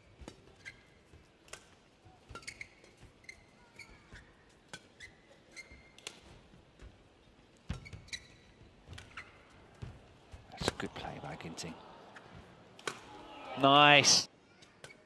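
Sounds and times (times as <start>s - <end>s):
shoes squeaking on court: 0.0s - 10.6s.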